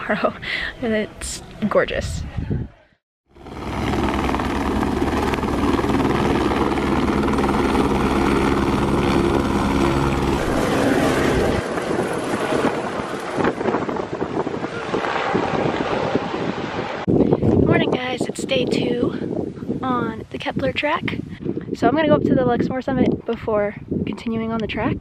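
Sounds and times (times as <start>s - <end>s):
wind on microphone: 1.2s - 25.0s
helicopter rotors and turbine: 3.3s - 22.3s.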